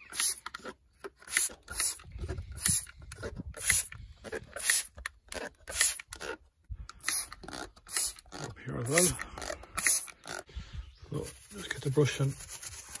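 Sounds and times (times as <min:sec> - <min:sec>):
spray bottle squirts: 0:00.0 - 0:03.0, 0:03.6 - 0:06.1, 0:07.0 - 0:08.3, 0:09.8 - 0:10.4.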